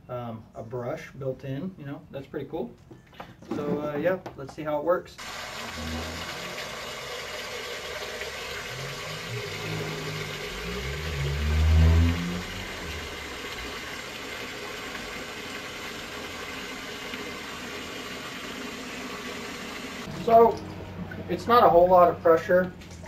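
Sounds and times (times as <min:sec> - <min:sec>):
tap water pouring into sink: 0:05.2 - 0:21.4
low hum: 0:05.6 - 0:07.0, 0:08.0 - 0:13.9.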